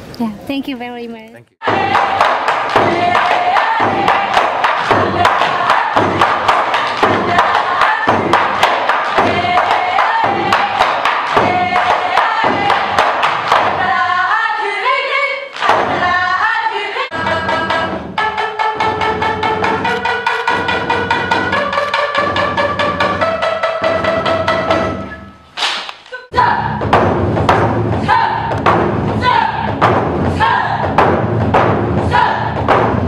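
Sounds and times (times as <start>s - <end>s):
taiko drum strikes: 1.6s - 13.9s, 26.6s - 33.0s
held instrumental notes: 17.1s - 25.5s.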